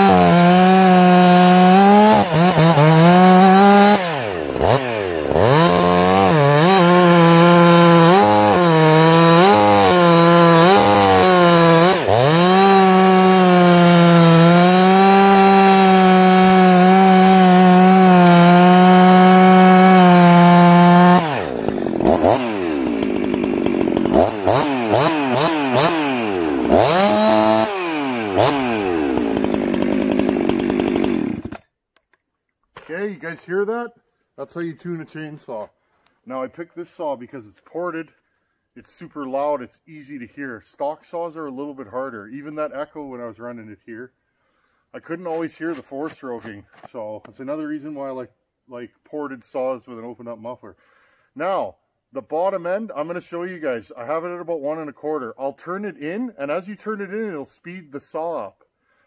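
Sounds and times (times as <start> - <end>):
chainsaw revving freely: 0.0 - 31.6
chainsaw cutting a log: 0.0 - 31.7.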